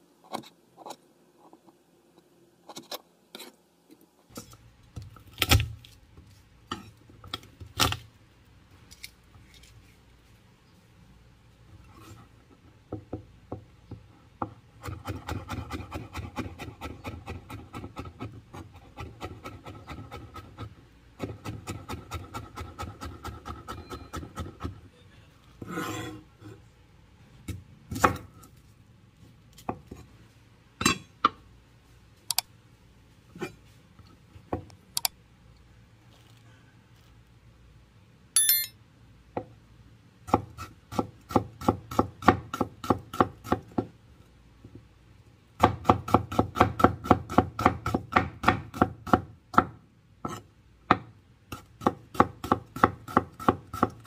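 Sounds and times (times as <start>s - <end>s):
blade scraping across board: 25.6s - 26.2s.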